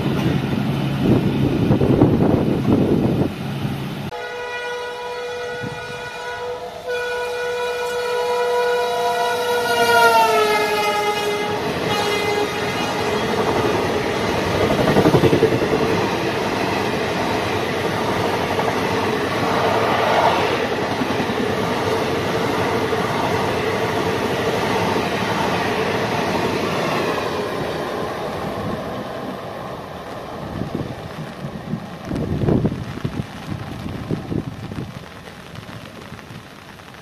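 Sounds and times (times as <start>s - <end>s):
train wheels on rails: 0.0s - 4.2s, 5.6s - 37.0s
train horn: 4.1s - 13.6s.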